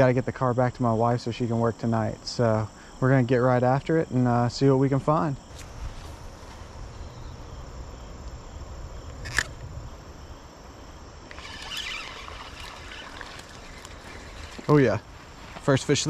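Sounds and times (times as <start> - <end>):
insects buzzing: 0.0 - 16.0
spinning reel whirring: 11.2 - 15.6.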